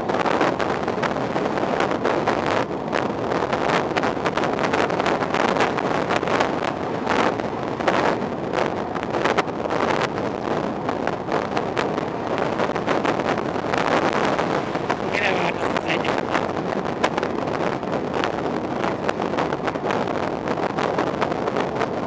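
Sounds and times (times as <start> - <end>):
car road noise: 0.0 - 22.0
wind buffeting microphone: 0.0 - 22.0.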